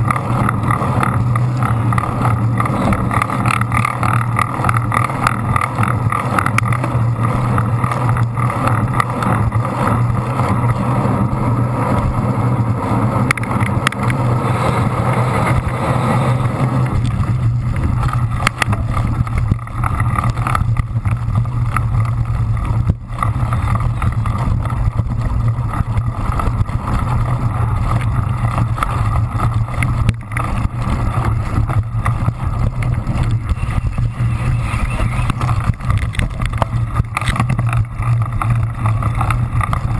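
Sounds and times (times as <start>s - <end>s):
bike rolling rumble: 0.0s - 39.9s
wind rush: 9.4s - 39.9s.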